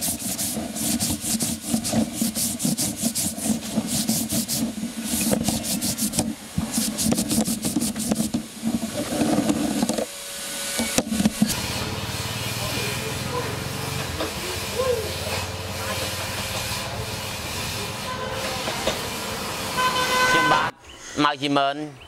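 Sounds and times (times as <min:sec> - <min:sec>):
wooden pieces rubbed and scraped: 0:00.0 - 0:10.1
steady hiss: 0:00.0 - 0:21.6.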